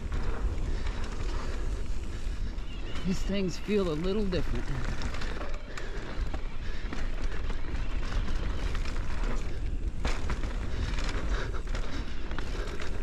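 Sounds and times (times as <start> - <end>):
bike rattles and clicks: 0.0 - 13.0
tyres rumbling on dirt and rocks: 0.0 - 13.0
wind buffeting microphone: 0.0 - 13.0.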